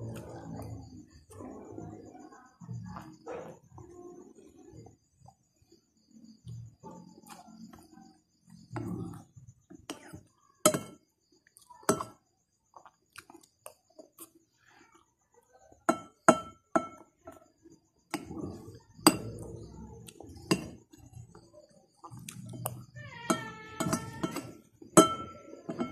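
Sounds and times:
spoon clinking on plate: 0:23.2 - 0:25.9.

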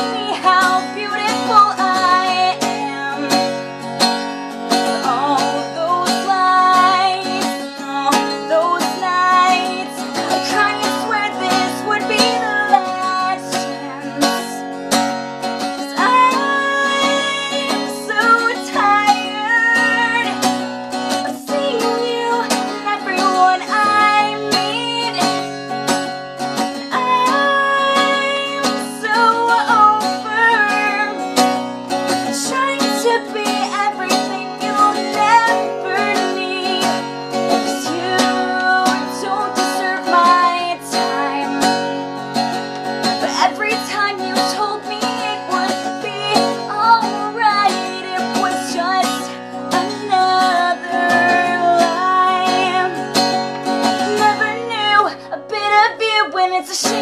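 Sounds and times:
woman singing: 0:00.0 - 0:42.1, 0:43.0 - 0:57.0
acoustic guitar strumming: 0:00.0 - 0:57.0.

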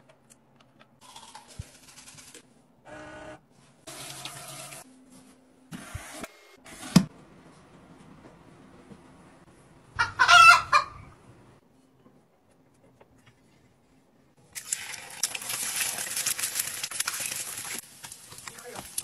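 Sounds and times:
eggs sizzling in hot oil: 0:14.5 - 0:19.0.

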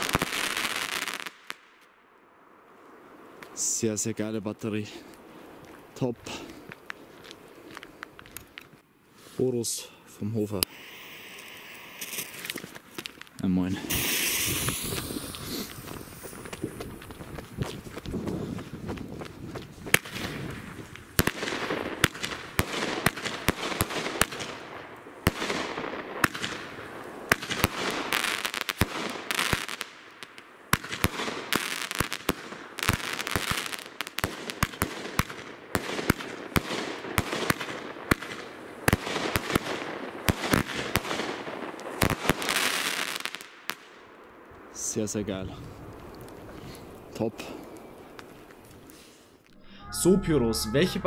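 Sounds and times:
firework shots with crackling bursts: 0:00.0 - 0:02.1, 0:10.3 - 0:19.1, 0:19.7 - 0:49.4.

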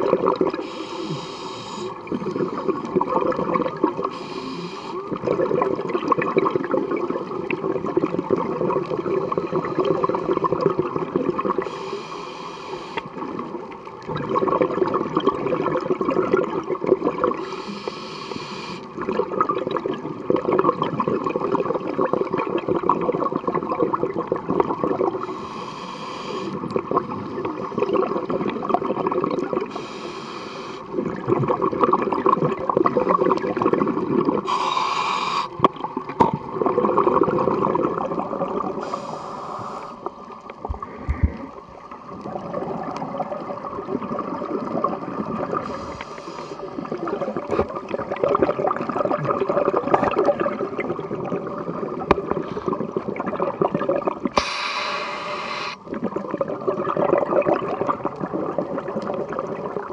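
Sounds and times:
burbling exhaled bubbles: 0:00.0 - 0:01.2, 0:02.0 - 0:11.7, 0:13.1 - 0:17.6, 0:18.8 - 0:25.4, 0:26.4 - 0:29.8, 0:30.9 - 0:34.6, 0:35.5 - 0:39.1, 0:40.0 - 0:46.0, 0:46.6 - 0:59.9
regulator hissing inhales: 0:00.6 - 0:02.0, 0:04.1 - 0:05.0, 0:11.6 - 0:13.1, 0:17.4 - 0:18.9, 0:25.2 - 0:26.6, 0:29.7 - 0:30.9, 0:34.4 - 0:35.6, 0:38.8 - 0:40.1, 0:45.6 - 0:46.7, 0:54.4 - 0:55.8.

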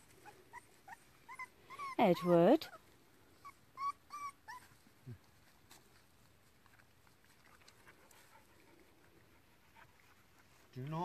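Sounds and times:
puppy squeaking: 0:00.2 - 0:04.8
faint clicks and rustles: 0:04.6 - 0:11.0.

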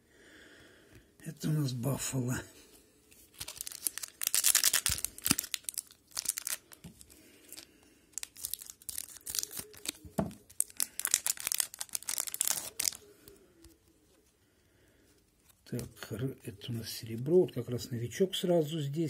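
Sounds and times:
wrapper tearing and crinkling: 0:03.2 - 0:13.1.

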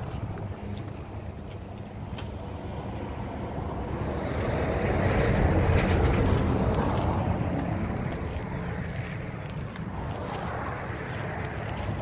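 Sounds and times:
tractor engine idling: 0:00.0 - 0:03.9
wind buffeting microphone: 0:03.3 - 0:12.0.

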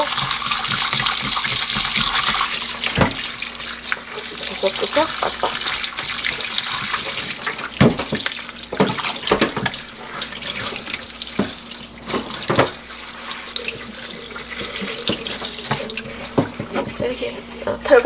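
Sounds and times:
tap running into steel sink: 0:00.0 - 0:04.2, 0:06.8 - 0:09.8, 0:10.6 - 0:12.8, 0:14.6 - 0:17.1
hands scrubbing raw duck: 0:00.0 - 0:17.2.

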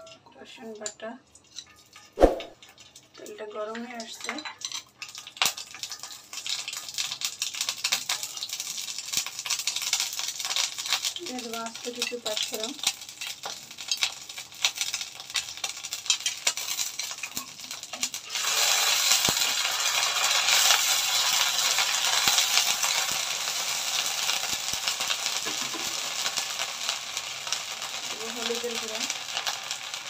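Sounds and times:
crackling and popping oil: 0:00.0 - 0:30.0
paste frying in hot oil: 0:00.0 - 0:30.0.

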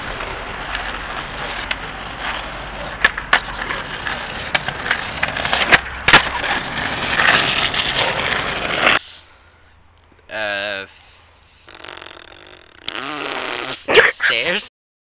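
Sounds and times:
skateboard wooden clacks: 0:00.0 - 0:09.0
skateboard wheels rolling on asphalt: 0:00.0 - 0:09.4.

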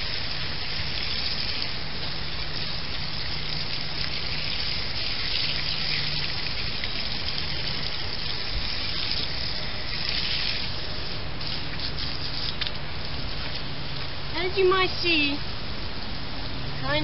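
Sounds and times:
hose water spraying: 0:00.0 - 0:15.3.

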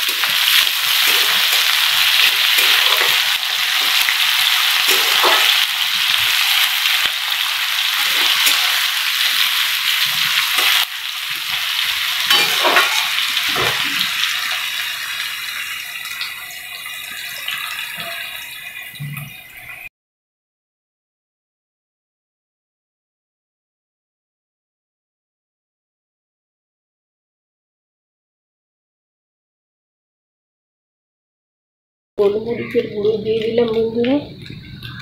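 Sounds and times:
metal spatula scraping a pan: 0:00.0 - 0:11.5, 0:12.1 - 0:14.7
potato and onion sizzling in oil: 0:00.0 - 0:19.9, 0:32.2 - 0:35.0.

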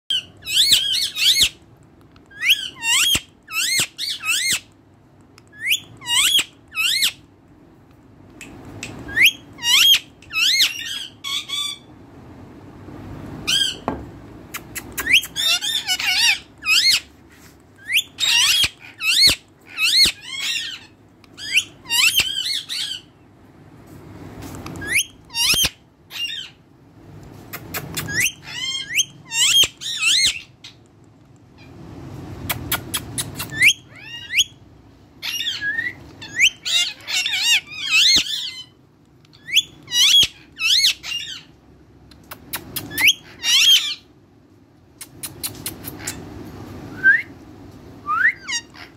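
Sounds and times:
parakeet squawking: 0:00.1 - 0:01.6, 0:02.3 - 0:04.7, 0:05.5 - 0:07.2, 0:08.9 - 0:11.9, 0:13.4 - 0:13.9, 0:14.6 - 0:17.1, 0:17.8 - 0:23.2, 0:24.8 - 0:26.6, 0:27.6 - 0:30.8, 0:32.6 - 0:34.6, 0:35.2 - 0:41.6, 0:42.6 - 0:44.1, 0:48.3 - 0:48.9.

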